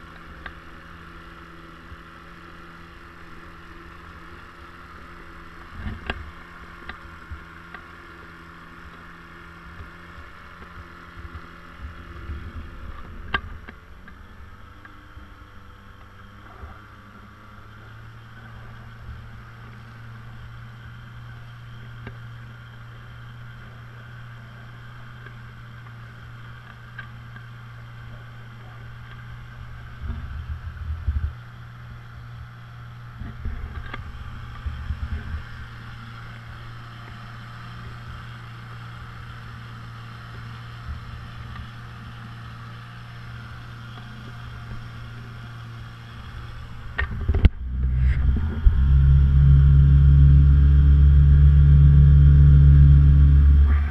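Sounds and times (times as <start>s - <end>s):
outboard motor humming: 0.0s - 53.9s
low bumps: 29.9s - 31.4s, 46.7s - 53.9s.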